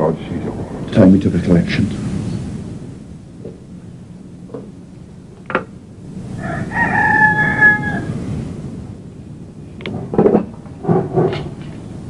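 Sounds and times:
rooster crowing: 6.0 - 8.7.

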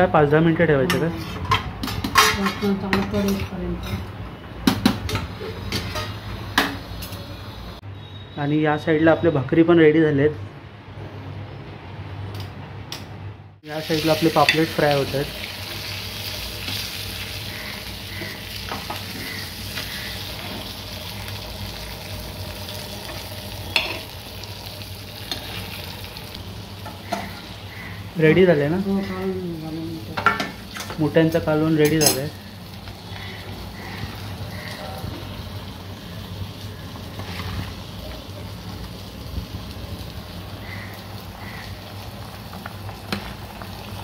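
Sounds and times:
fish sizzling in pan: 13.7 - 30.8, 32.3 - 44.0
metal turner scraping pan: 37.2 - 37.7.

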